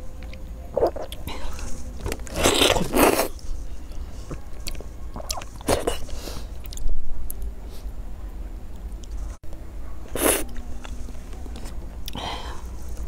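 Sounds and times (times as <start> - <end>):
biting and chewing food: 0.2 - 3.6.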